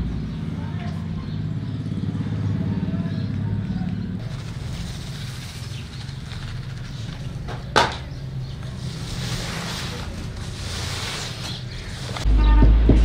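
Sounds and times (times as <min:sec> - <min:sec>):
cloth sheet rustling: 0:08.6 - 0:12.3.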